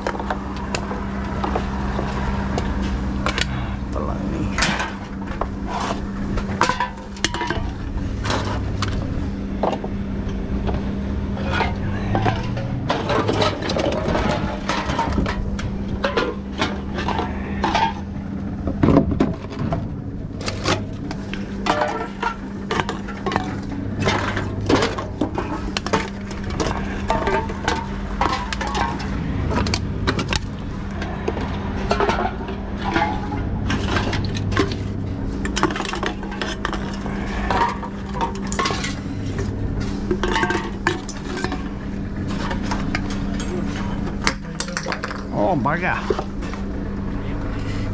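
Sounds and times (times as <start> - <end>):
cans and bottles clattering: 0.0 - 3.7, 4.5 - 9.9, 11.4 - 46.6
conveyor hum: 0.0 - 47.9.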